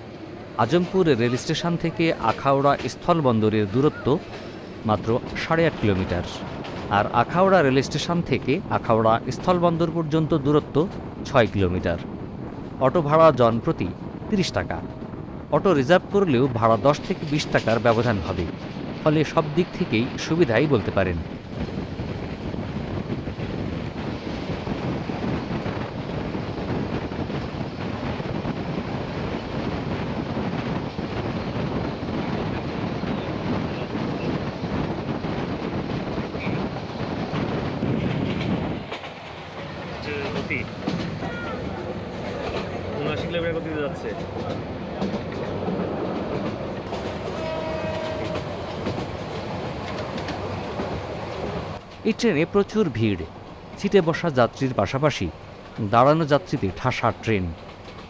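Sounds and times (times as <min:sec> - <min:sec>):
train rumbling and rattling: 0:00.0 - 0:58.0
wind buffeting microphone: 0:10.6 - 0:52.2.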